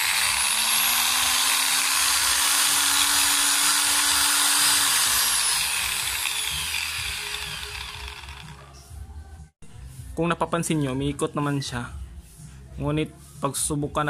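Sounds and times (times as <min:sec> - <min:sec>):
angle grinder motor whine: 0:00.0 - 0:08.7.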